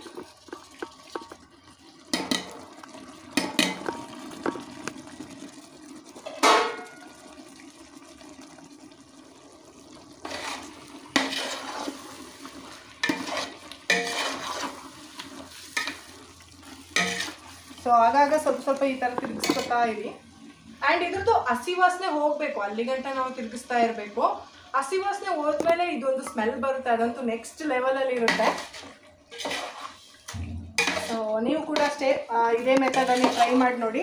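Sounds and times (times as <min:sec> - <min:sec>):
spoon scraping and knocking pot: 0:00.0 - 0:01.4, 0:02.1 - 0:02.6, 0:13.0 - 0:14.8, 0:17.0 - 0:17.4, 0:19.1 - 0:19.8, 0:28.2 - 0:32.1, 0:32.7 - 0:33.6
frying sizzle: 0:00.0 - 0:34.0.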